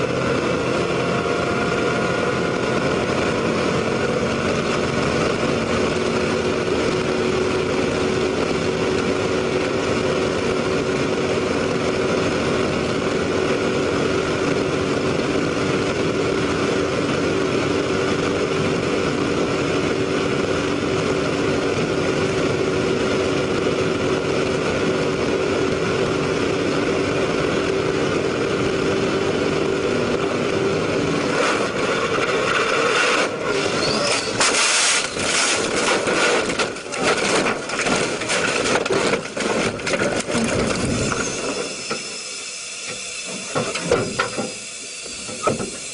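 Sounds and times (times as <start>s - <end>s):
race car engine at full throttle: 0.0s - 45.9s
car crashing with bangs and scraping: 33.7s - 41.6s.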